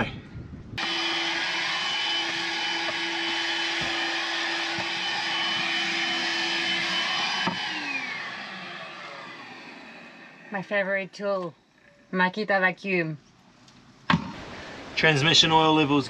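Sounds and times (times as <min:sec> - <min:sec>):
handheld vacuum cleaner running: 0:00.8 - 0:10.6.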